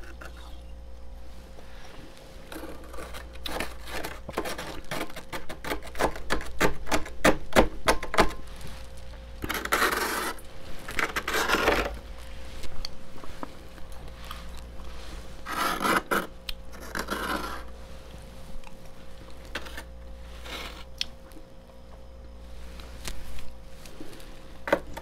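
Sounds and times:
metal spoon scraping frost: 0:02.4 - 0:06.1, 0:09.4 - 0:12.0, 0:14.3 - 0:17.7, 0:19.6 - 0:20.9.

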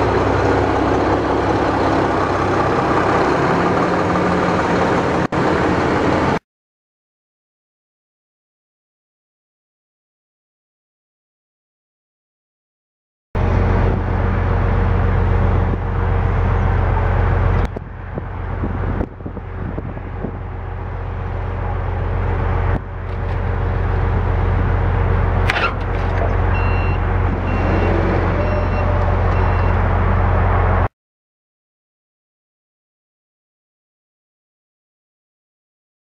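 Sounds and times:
heavy engine running: 0:00.0 - 0:06.4, 0:13.4 - 0:30.9
rising whine: 0:13.4 - 0:30.9
reversing alarm beeping: 0:26.5 - 0:29.9.

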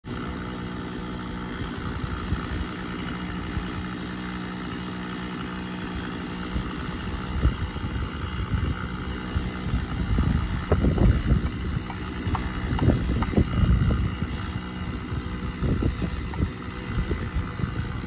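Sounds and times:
engine idling: 0:00.1 - 0:18.0
wind buffeting microphone: 0:09.6 - 0:18.0.

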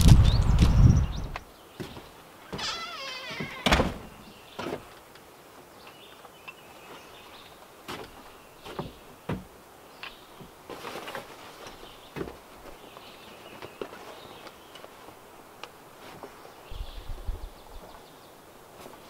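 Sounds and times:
footsteps on wooden boards: 0:00.0 - 0:05.1, 0:06.9 - 0:09.6, 0:10.3 - 0:16.5
wooden door banging shut: 0:02.5 - 0:04.8.

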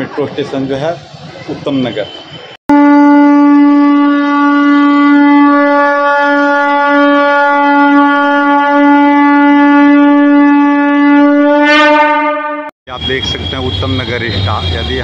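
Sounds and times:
wind instrument long note: 0:02.7 - 0:13.5.

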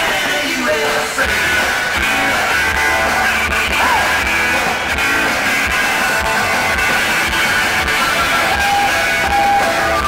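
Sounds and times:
person singing: 0:00.0 - 0:04.3
rock music with guitar: 0:00.0 - 0:10.0.

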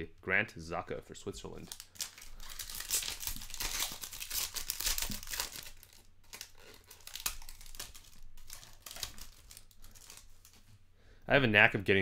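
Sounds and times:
foil wrapper crinkling and tearing: 0:01.6 - 0:10.7.

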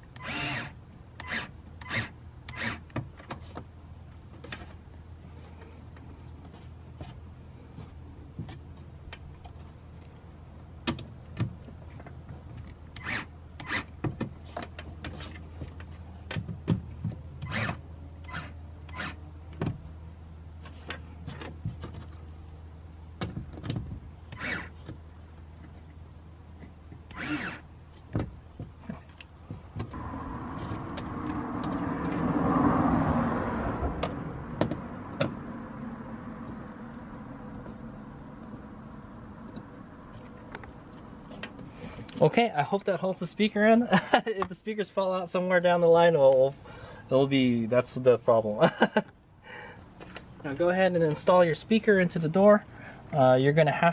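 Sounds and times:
steady low hum: 0:28.6 - 0:32.7
vehicle passing: 0:29.9 - 0:42.0.

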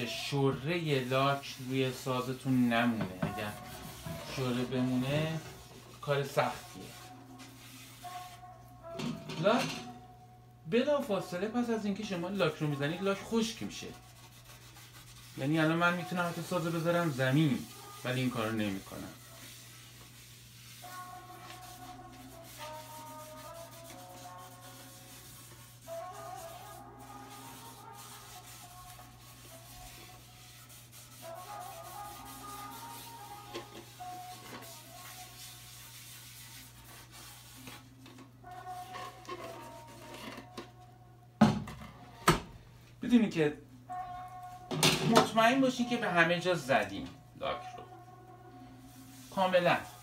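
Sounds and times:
pad rubbing on wood: 0:02.8 - 0:08.5, 0:13.9 - 0:37.8
quiet held musical tones: 0:42.0 - 0:50.0.

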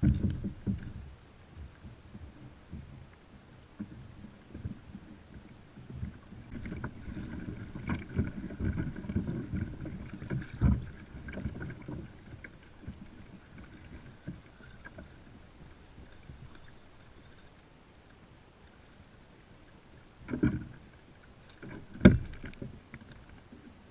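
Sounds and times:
water slapping against kayak hull: 0:00.0 - 0:03.1, 0:03.8 - 0:16.7, 0:20.2 - 0:23.8.

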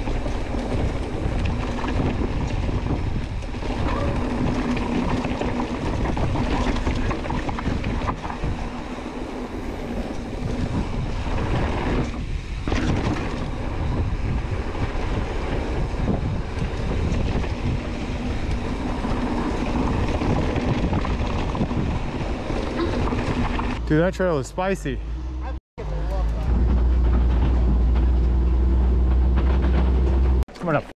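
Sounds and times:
bike rattling over rocks: 0:00.0 - 0:23.8
wind rushing over microphone: 0:00.0 - 0:25.4.

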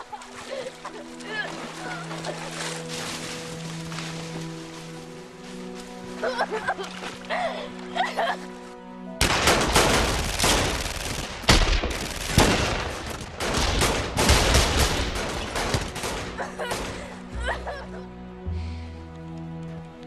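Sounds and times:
low sustained music tone: 0:00.0 - 0:09.2
gunshots in quick succession: 0:09.2 - 0:16.9.

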